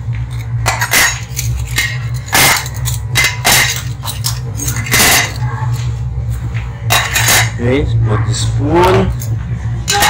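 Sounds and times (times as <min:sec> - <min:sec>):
steady low hum: 0:00.0 - 0:10.0
spoons clinking on ceramic plates: 0:00.4 - 0:05.5, 0:06.9 - 0:07.6.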